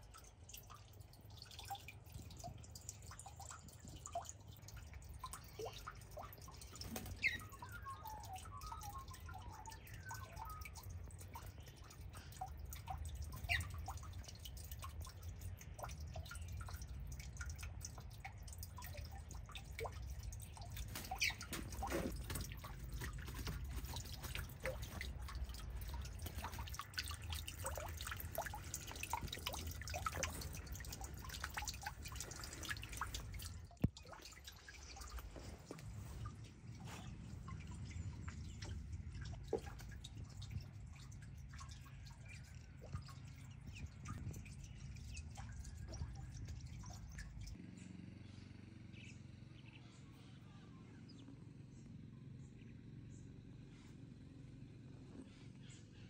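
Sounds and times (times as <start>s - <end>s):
birds chirping: 2.7s - 47.9s
bird twittering: 7.1s - 10.8s
whistled bird notes: 7.2s - 10.7s
steady low rumble: 15.1s - 47.6s.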